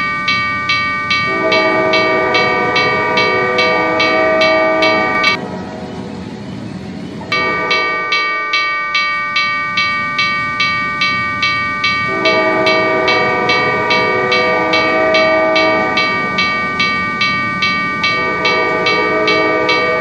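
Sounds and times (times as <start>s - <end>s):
railroad crossing bell ringing: 0.0s - 5.8s, 7.2s - 20.0s
freight train passing: 0.0s - 20.0s
train horn: 1.3s - 6.0s, 7.3s - 8.5s, 12.1s - 16.2s, 18.1s - 20.0s.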